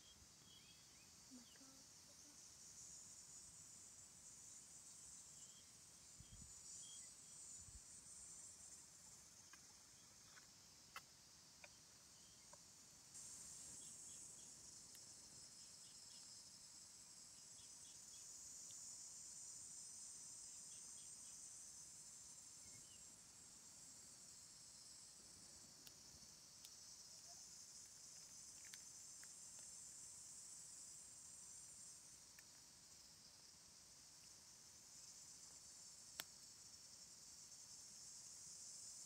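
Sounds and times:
crickets chirping: 0:00.0 - 0:39.0
faint sharp clicks: 0:26.6 - 0:29.8, 0:36.1 - 0:36.4.

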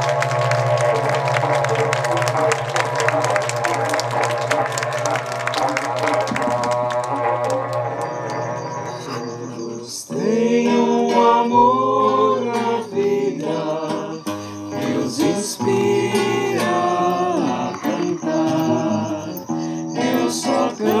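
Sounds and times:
long horns droning: 0:00.0 - 0:09.8
acoustic guitar: 0:00.0 - 0:21.0
person singing: 0:05.5 - 0:08.4, 0:09.1 - 0:21.0.

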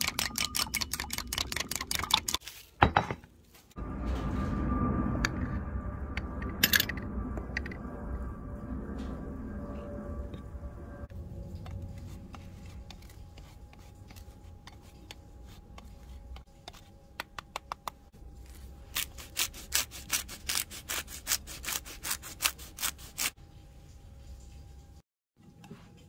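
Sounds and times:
cheese scraping on grater: 0:19.0 - 0:23.4.

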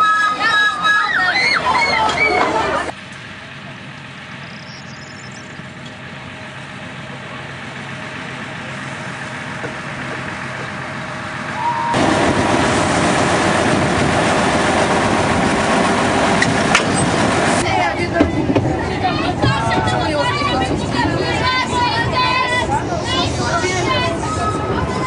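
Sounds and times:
diesel locomotive passing: 0:00.0 - 0:25.0.

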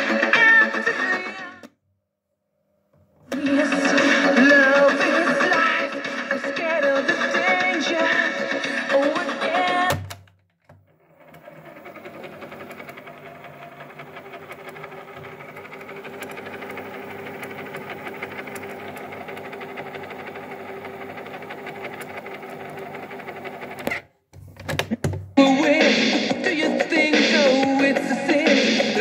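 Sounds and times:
music: 0:00.0 - 0:01.7, 0:03.2 - 0:10.2, 0:24.8 - 0:29.0
cassette tape winding whirr: 0:03.2 - 0:06.2, 0:10.8 - 0:24.1.

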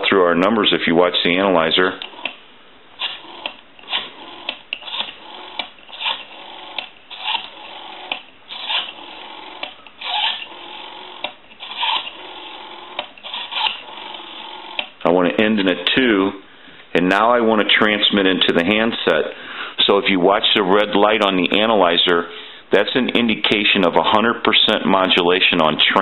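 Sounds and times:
rotary telephone dial clicking: 0:02.0 - 0:02.4, 0:03.0 - 0:15.0.

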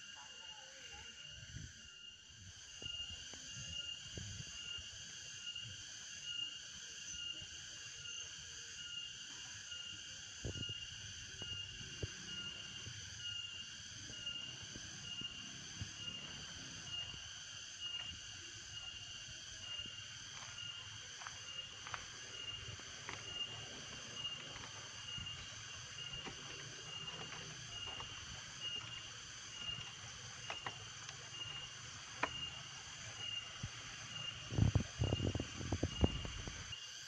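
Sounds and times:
insects chirping: 0:00.0 - 0:37.0.

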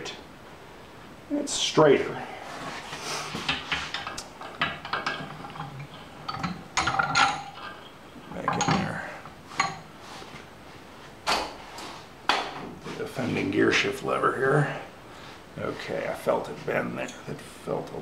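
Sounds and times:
vise handle turning: 0:03.3 - 0:09.8.

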